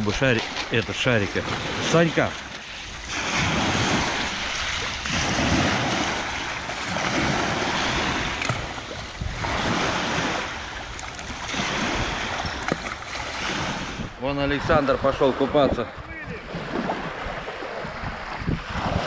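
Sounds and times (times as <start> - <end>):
small waves breaking on pebbles: 0.0 - 14.0
wind rumbling on microphone: 0.0 - 19.0.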